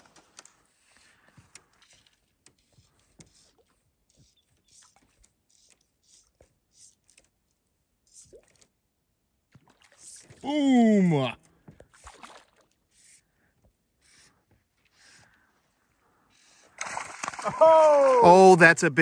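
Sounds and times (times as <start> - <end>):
faint ticks and clicks: 0.0 - 8.7.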